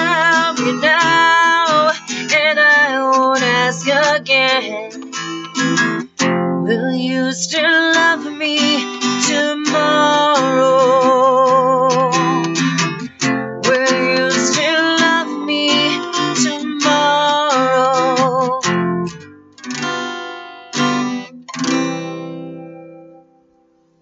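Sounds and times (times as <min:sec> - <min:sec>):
woman singing: 0:00.0 - 0:05.9, 0:06.5 - 0:19.1
acoustic guitar strumming: 0:00.0 - 0:24.0.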